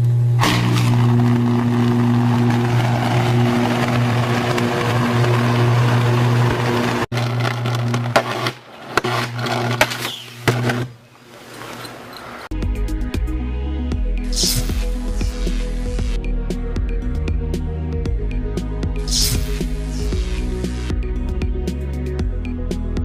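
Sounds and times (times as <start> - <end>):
electrical arcing buzz: 0.0 - 11.0, 14.2 - 16.3, 19.0 - 21.0
sharp electrical cracks: 0.4 - 5.4, 7.1 - 11.0, 14.3 - 16.2, 19.1 - 20.9.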